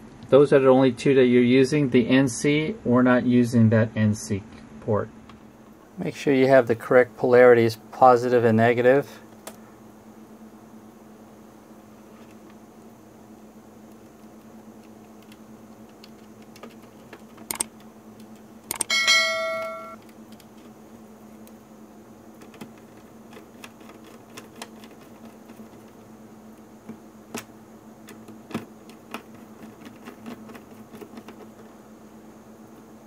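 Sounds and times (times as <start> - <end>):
steady low hum: 0.0 - 33.0
screwdriver clicks and taps: 17.4 - 18.9
bright metallic ring: 18.8 - 20.0.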